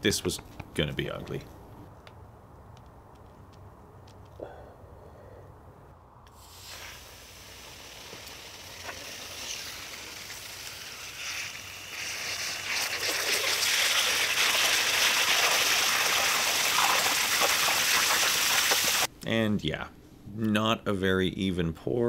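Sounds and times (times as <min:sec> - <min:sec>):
hot metal sizzling in water: 0:06.4 - 0:19.1.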